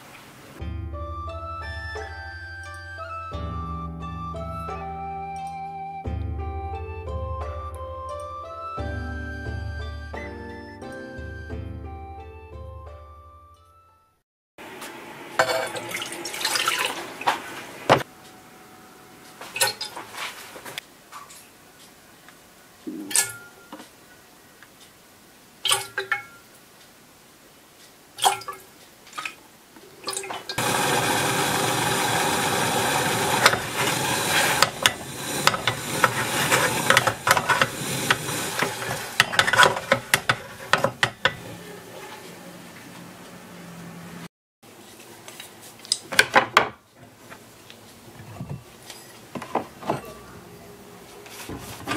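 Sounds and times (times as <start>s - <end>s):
liquid boiling with pops: 30.2s - 41.4s.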